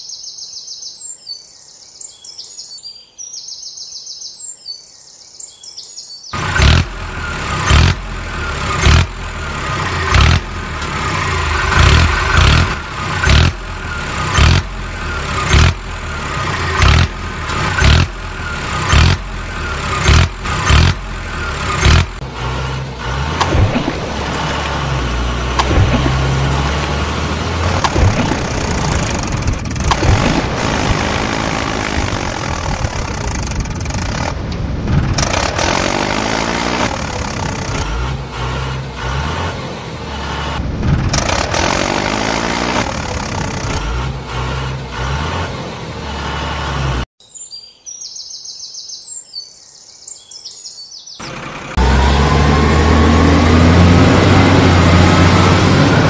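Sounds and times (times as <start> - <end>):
birds chirping: 0.0 - 7.4, 47.2 - 51.6
vehicle engine running: 6.4 - 47.2, 51.2 - 56.0.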